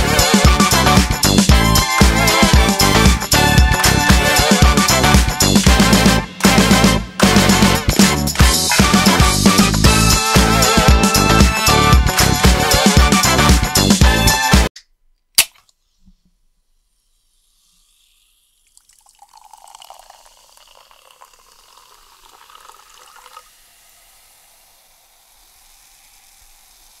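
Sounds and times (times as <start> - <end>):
drink can tab snapping open: 15.4 - 15.7
carbonated drink fizzing: 17.4 - 27.0.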